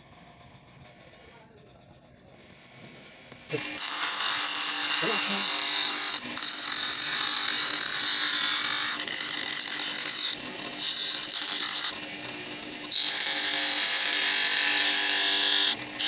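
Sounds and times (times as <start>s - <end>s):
bench grinder motor hum: 0.0s - 16.0s
grinding wheel on plastic: 0.0s - 16.0s.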